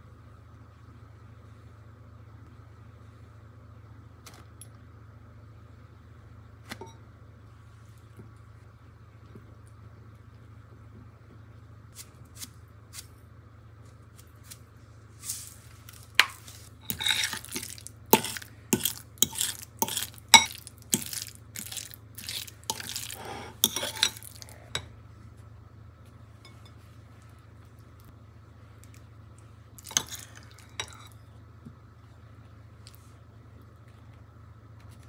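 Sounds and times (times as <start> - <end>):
metal utensil scraping ceramic bowl: 16.2 - 24.8.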